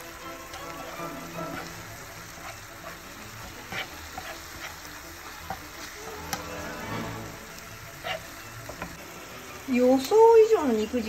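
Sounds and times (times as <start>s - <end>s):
meat and onions sizzling in pan: 0.0s - 11.0s
metal spatula scraping pan: 0.6s - 9.0s.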